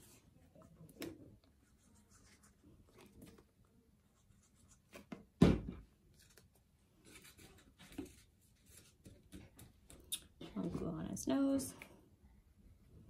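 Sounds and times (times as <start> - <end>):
paper rustling and rubbing: 1.6 - 5.1, 7.0 - 9.7.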